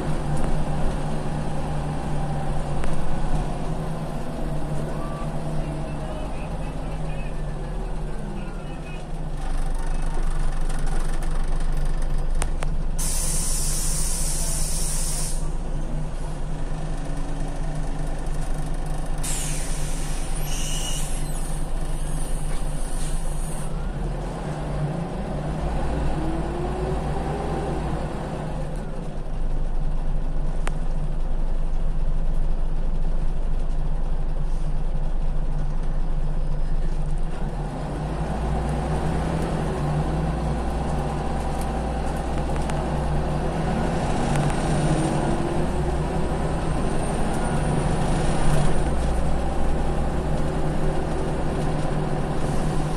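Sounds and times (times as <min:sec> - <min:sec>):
bus diesel engine humming: 0:00.0 - 0:52.9
compressed air hiss: 0:13.0 - 0:15.5.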